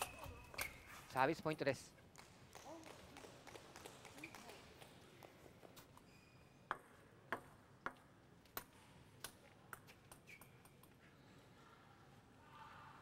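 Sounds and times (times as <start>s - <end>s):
table tennis ball bouncing: 6.7s - 8.6s.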